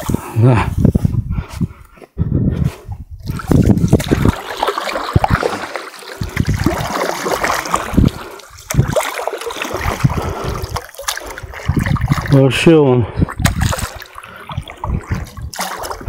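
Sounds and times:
water splashing and sloshing: 3.2 - 16.0.

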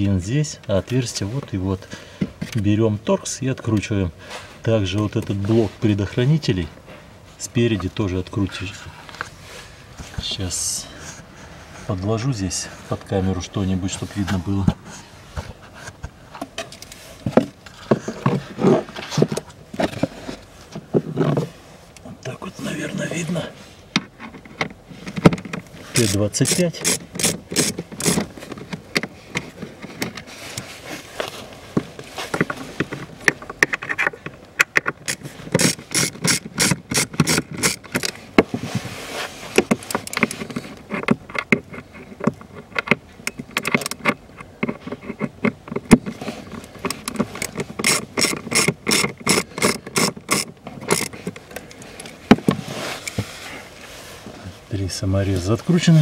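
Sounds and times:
ratcheting screwdriver clicking: 26.0 - 28.3, 33.9 - 38.2, 46.8 - 52.1.

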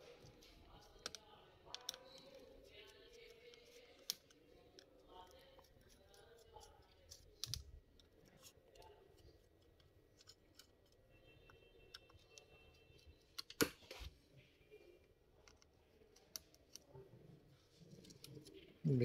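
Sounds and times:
small screwdriver clicking and scraping: 0.8 - 11.0.

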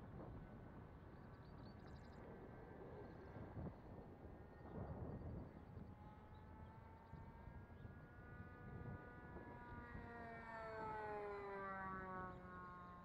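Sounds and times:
wind rumble on microphone: 0.0 - 6.4
model airplane motor flying past: 7.2 - 13.0.

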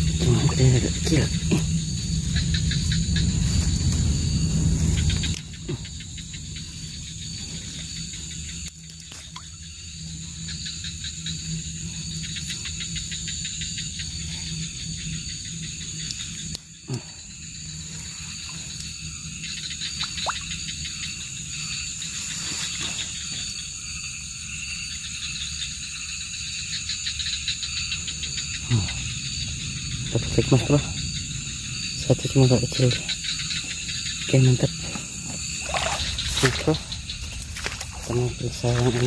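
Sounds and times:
crickets and insects trilling: 0.0 - 39.0.

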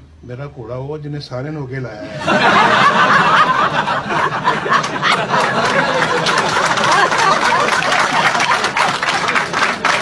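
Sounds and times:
crowd laughing loudly: 2.0 - 10.0
people clapping: 4.2 - 10.0.

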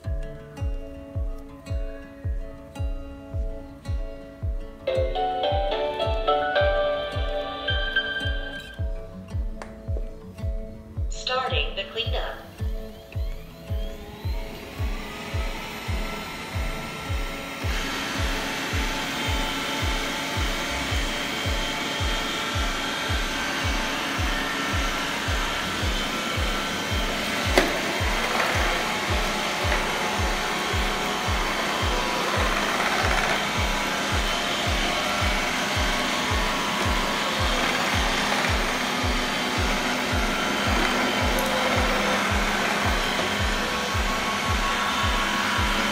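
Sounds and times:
music with steady beat: 0.0 - 45.9
robot vacuum fan whirring: 12.7 - 45.9.

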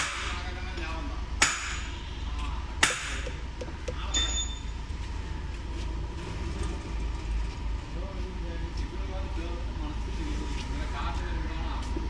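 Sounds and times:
diesel engine idling: 0.0 - 12.0
short electronic beep: 4.1 - 4.7.

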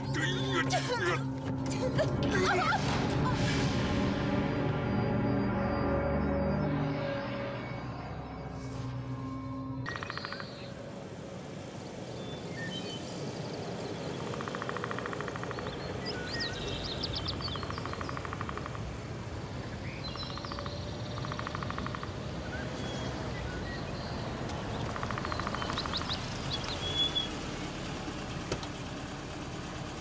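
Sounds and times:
birds chirping: 4.6 - 27.4.

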